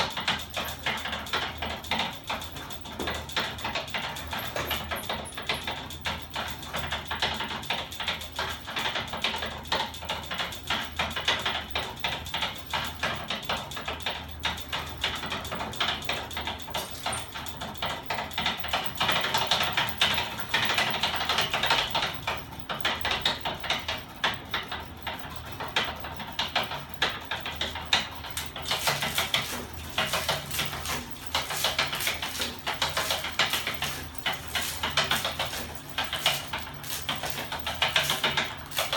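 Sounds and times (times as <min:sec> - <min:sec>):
metal linkages rattling: 0:15.1 - 0:22.2, 0:27.0 - 0:38.9.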